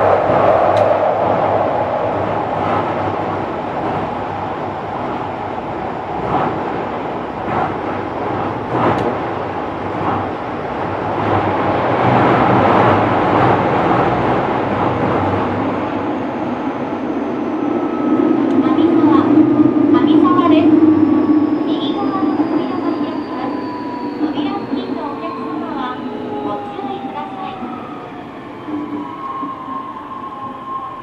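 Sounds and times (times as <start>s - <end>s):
train wheels rumbling on rails: 0.0s - 31.0s
track clicks: 7.4s - 15.7s.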